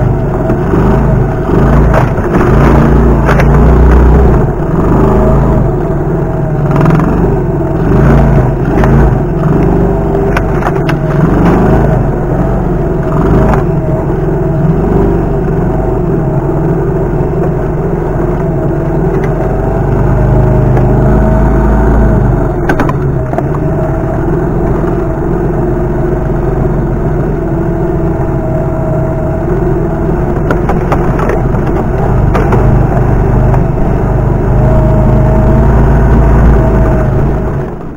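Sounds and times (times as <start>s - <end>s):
small motorcycle engine running: 0.0s - 37.9s
knocks and rattles: 1.6s - 4.4s, 30.3s - 33.8s.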